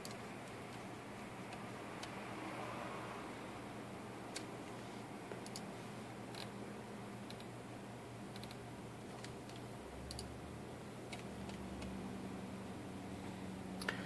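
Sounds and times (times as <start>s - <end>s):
running computer hum: 0.0s - 14.0s
computer mouse clicks: 4.3s - 4.5s, 5.3s - 5.7s, 6.3s - 6.5s, 7.3s - 7.5s, 8.3s - 10.3s, 11.1s - 12.0s.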